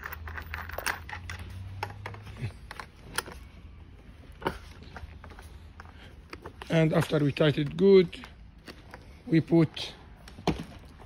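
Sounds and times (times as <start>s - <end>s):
metal washers clicking on axle: 0.0s - 3.4s.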